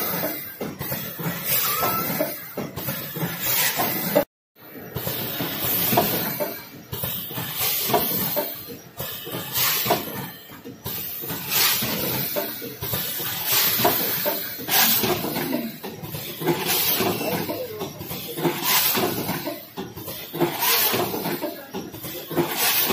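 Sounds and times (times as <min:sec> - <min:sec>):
machine mechanical clacks: 0:00.0 - 0:22.9
pneumatic air hissing: 0:05.0 - 0:10.2, 0:10.9 - 0:15.5, 0:18.6 - 0:19.4.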